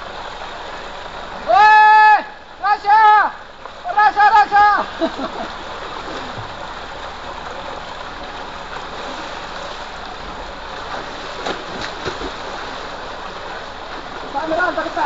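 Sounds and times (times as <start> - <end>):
people splashing in water: 3.7 - 15.0.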